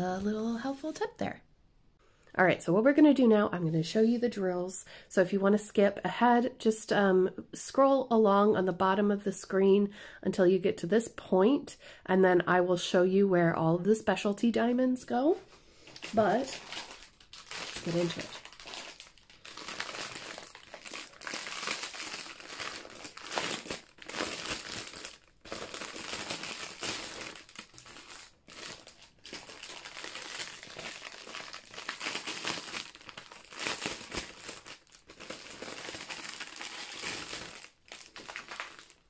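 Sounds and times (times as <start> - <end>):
plastic bag crinkling: 15.9 - 39.0.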